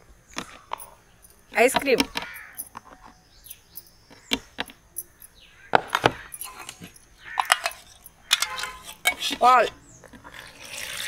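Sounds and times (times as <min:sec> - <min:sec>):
spoon clinking against plastic: 0:05.0 - 0:09.3.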